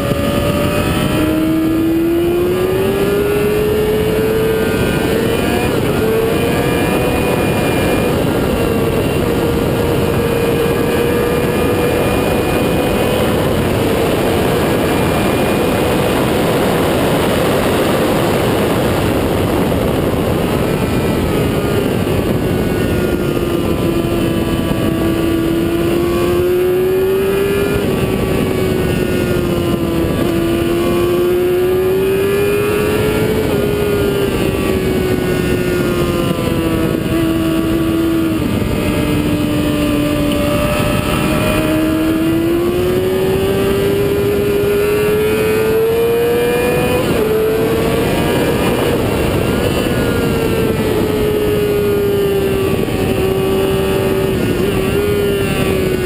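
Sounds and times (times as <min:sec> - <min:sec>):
motorcycle engine at speed: 0:00.0 - 0:56.0
wind rush on microphone: 0:00.0 - 0:56.0.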